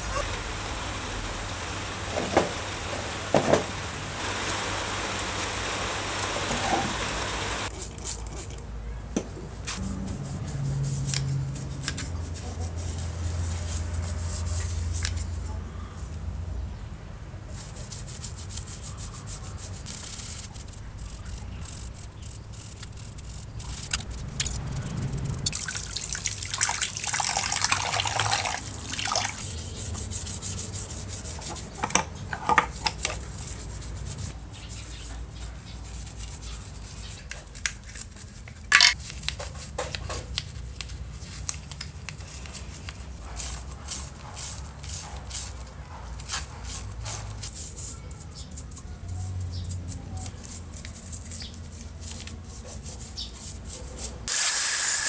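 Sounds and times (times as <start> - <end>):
brush scrubbing wet parts: 9.6 - 16.0, 17.5 - 54.4.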